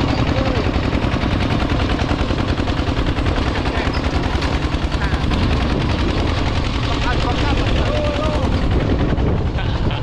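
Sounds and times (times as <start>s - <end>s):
tractor engine chugging: 0.0s - 10.0s.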